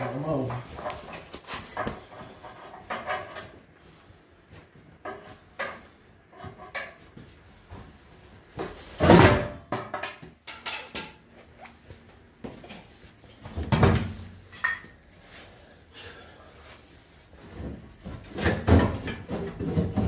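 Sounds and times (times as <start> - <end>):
hand tools and metal parts clattering: 0.0 - 3.7, 5.0 - 7.8, 8.5 - 15.4, 17.4 - 20.0.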